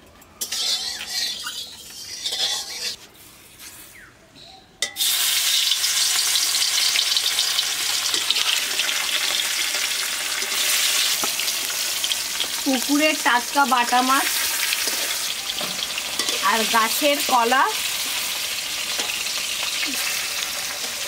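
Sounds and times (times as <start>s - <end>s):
fish sizzling in hot oil: 5.0s - 21.0s.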